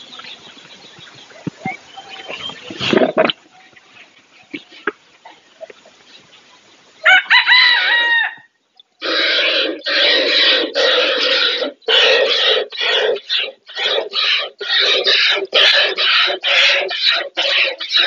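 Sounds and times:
rooster crowing: 0:07.0 - 0:08.5
rough rapid chicken calls: 0:07.0 - 0:18.0.

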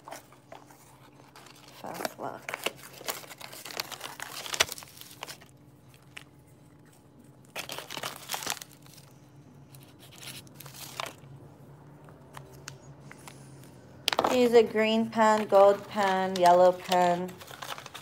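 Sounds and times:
paper banknotes crinkling: 0:00.0 - 0:06.4, 0:07.4 - 0:11.2, 0:14.1 - 0:18.0.

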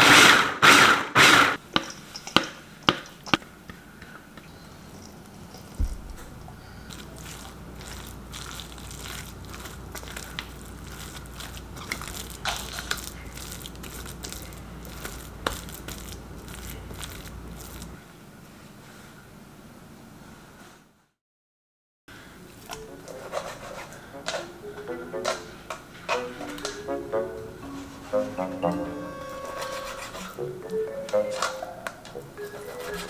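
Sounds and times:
wet filling squishing: 0:04.9 - 0:18.0.

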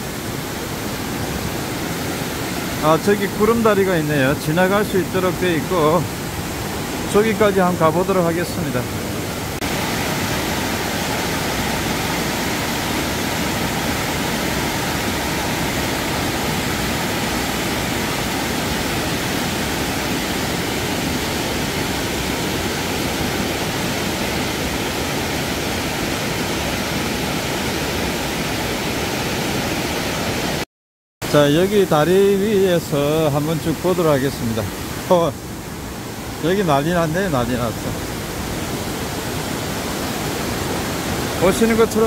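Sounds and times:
stream rushing over boulders: 0:00.0 - 0:30.6, 0:31.2 - 0:42.0.

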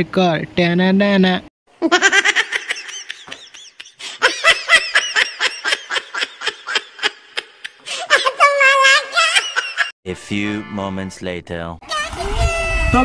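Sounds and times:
high-pitched snickering laughter: 0:01.8 - 0:09.9.

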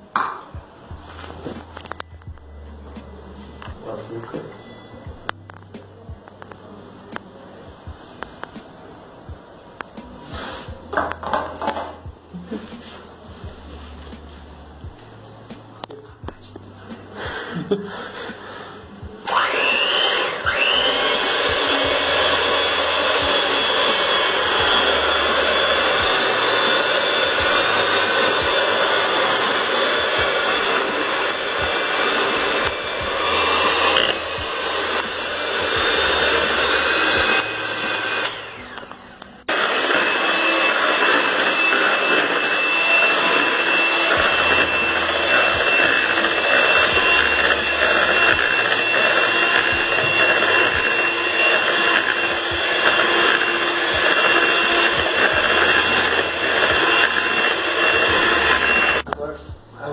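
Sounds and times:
electric hand mixer whining: 0:17.1 - 0:59.1.

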